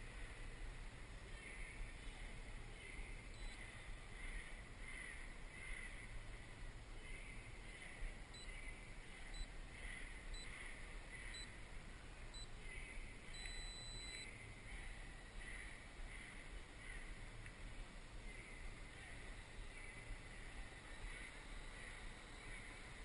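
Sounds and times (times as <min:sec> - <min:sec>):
faint steady hiss: 0:00.0 - 0:23.0
faint electronic beeps: 0:01.2 - 0:04.7, 0:07.0 - 0:17.5, 0:18.1 - 0:23.0
high pulsing chirp: 0:02.8 - 0:04.0, 0:07.2 - 0:11.6, 0:12.2 - 0:16.4, 0:18.2 - 0:23.0.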